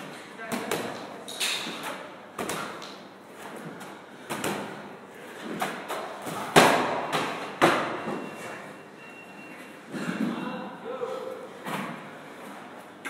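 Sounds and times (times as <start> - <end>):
medicine balls thudding against wall: 0.4 - 8.3.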